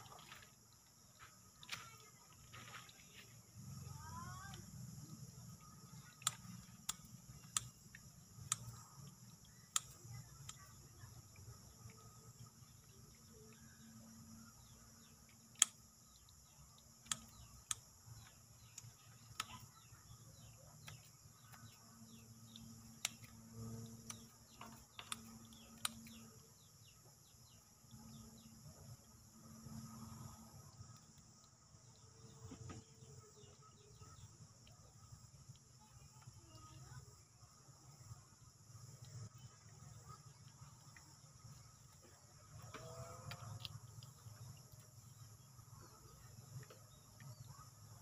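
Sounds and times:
sharp clicks: 0:05.6 - 0:12.1, 0:15.3 - 0:19.8.

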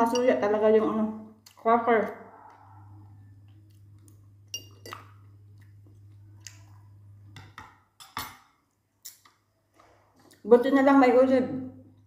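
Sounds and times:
quiet chewing: 0:02.4 - 0:07.0
fork clinking on glass bowl: 0:04.5 - 0:05.1.

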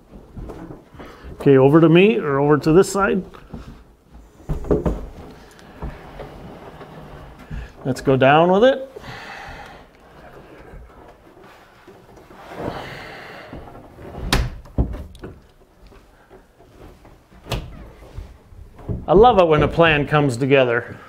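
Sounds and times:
wooden countertop sliding: 0:02.8 - 0:15.5.

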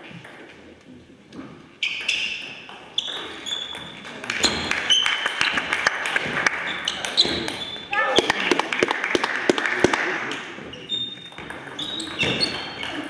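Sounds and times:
shoes squeaking on floor: 0:01.8 - 0:08.4, 0:10.6 - 0:13.0.

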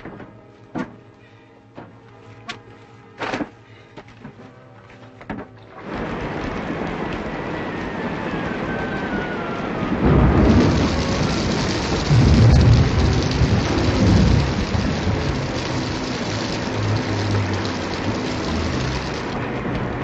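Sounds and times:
low rumbling water surges: 0:05.7 - 0:20.0
water gushing onto stone floor: 0:10.0 - 0:20.0.

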